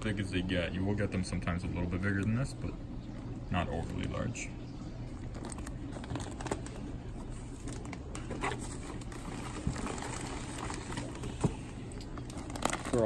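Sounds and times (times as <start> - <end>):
low steady hum: 0.0 - 13.0
plastic bags crinkling: 5.1 - 13.0.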